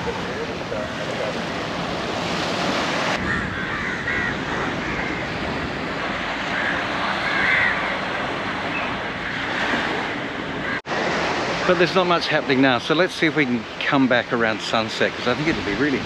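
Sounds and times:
sea rushing: 0.0s - 16.0s
wind: 0.0s - 16.0s
crows cawing: 3.2s - 5.6s, 6.3s - 8.3s, 10.6s - 10.8s.

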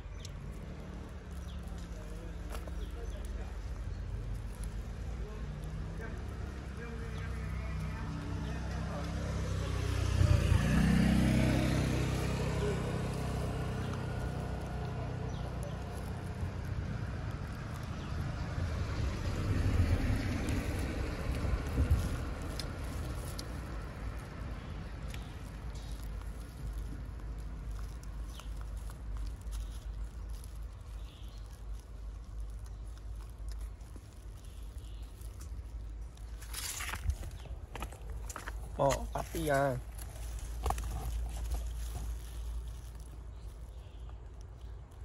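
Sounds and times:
engine running: 0.3s - 25.3s.

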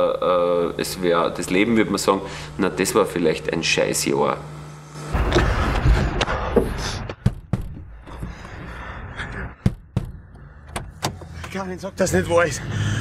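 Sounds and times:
car door clicks and knocks: 7.2s - 7.9s, 9.6s - 11.3s.

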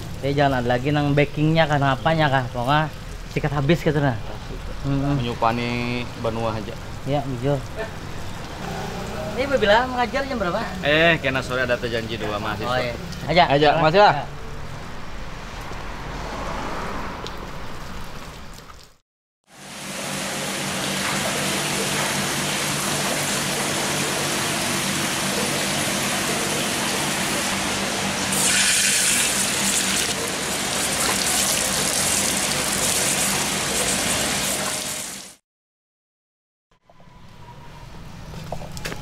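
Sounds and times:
running water rushing: 16.4s - 35.4s.

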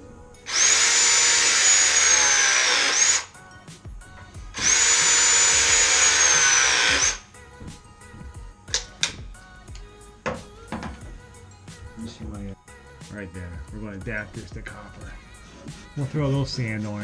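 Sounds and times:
pipe cutter motor whine: 0.0s - 3.4s, 4.5s - 7.2s.

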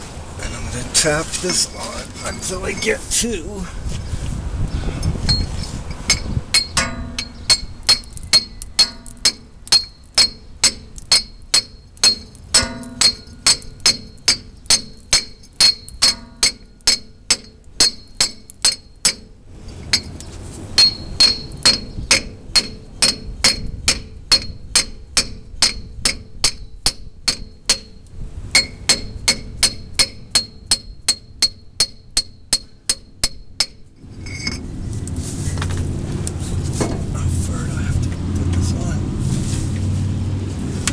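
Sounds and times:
hammer striking metal pipe: 6.1s - 20.1s, 20.8s - 34.6s.

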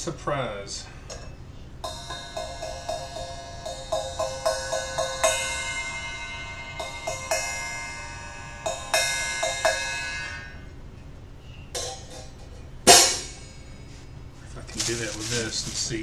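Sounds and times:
cymbal struck and ringing: 1.1s - 10.8s, 11.8s - 14.1s.

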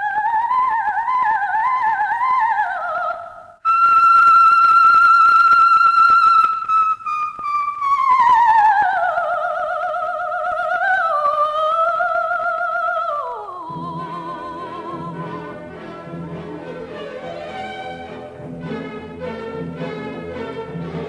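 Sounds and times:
soprano singing high vocalise: 6.9s - 18.2s
faint accompaniment: 13.7s - 21.0s.

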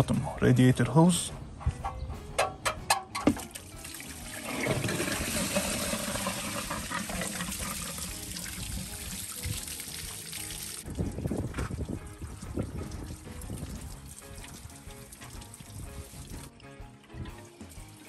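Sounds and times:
liquid pouring onto ground: 3.4s - 16.5s.

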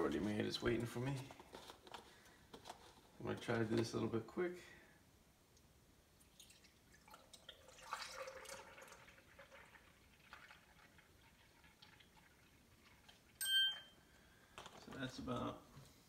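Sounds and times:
liquid trickling and dripping: 6.2s - 13.5s.

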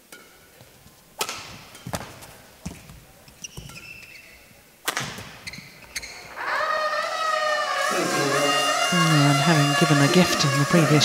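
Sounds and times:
rackets striking shuttlecock: 0.0s - 7.2s
shoe squeaks on court floor: 0.7s - 9.0s
crowd cheering: 5.9s - 11.0s.

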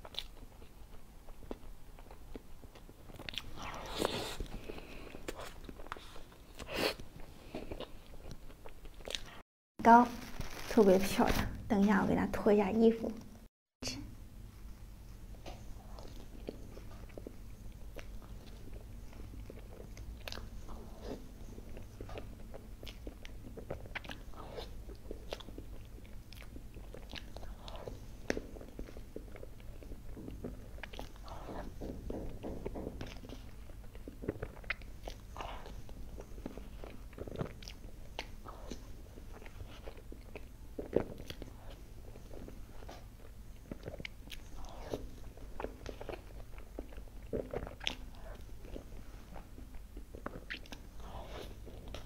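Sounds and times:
soft chewing: 0.0s - 9.4s, 14.4s - 52.0s
wet mouth clicks: 50.3s - 50.8s.

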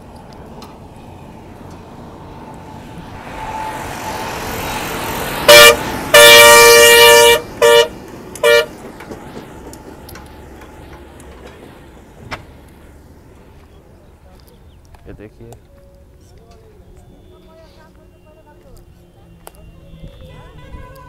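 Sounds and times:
dump truck engine and tyres: 0.0s - 21.0s
truck horn blasts: 5.4s - 8.8s.

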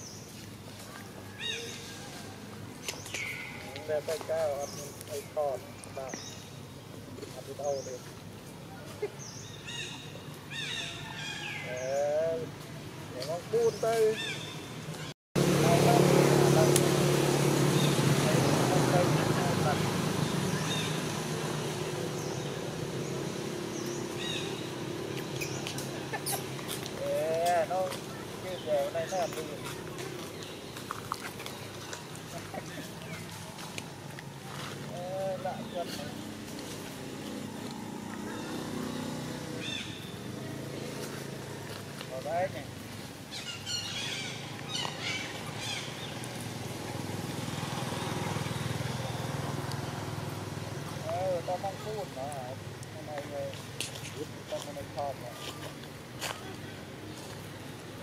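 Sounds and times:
outdoor background noise: 0.0s - 58.0s
high chirping calls: 2.8s - 6.7s, 18.9s - 33.6s, 43.3s - 46.4s
motor engine humming: 15.4s - 42.6s.

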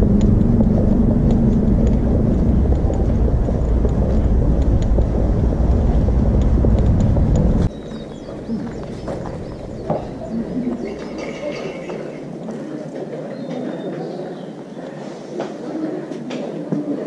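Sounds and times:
vehicle rumble in motion: 0.0s - 12.4s
engine hum: 0.0s - 12.6s.

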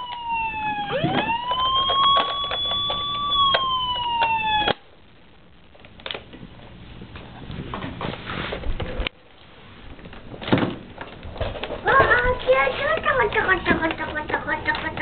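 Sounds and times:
toy siren wail: 0.0s - 4.8s.

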